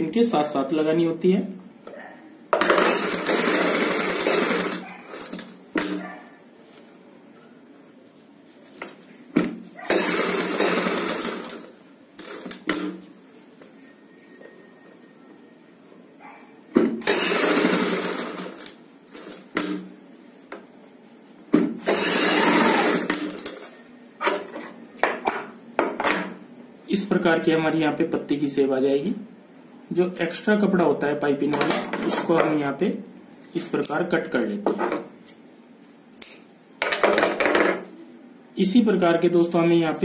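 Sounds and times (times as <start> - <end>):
sewing machine running: 2.6 - 6.0, 9.9 - 12.9, 17.0 - 19.7, 21.8 - 23.7.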